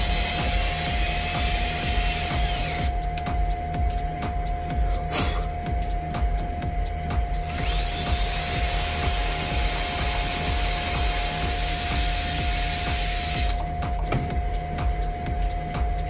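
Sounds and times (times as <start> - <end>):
cordless drill whining: 0.0 - 2.9, 7.4 - 13.6.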